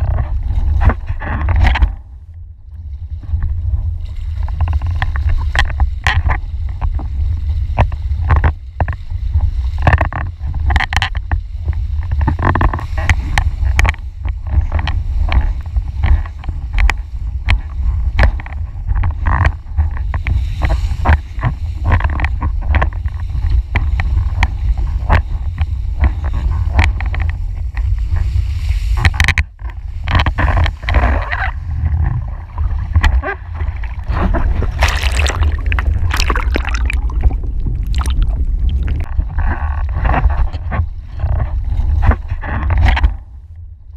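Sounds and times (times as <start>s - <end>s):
wind buffeting microphone: 0.0s - 43.9s
water rushing and spraying: 32.2s - 39.2s.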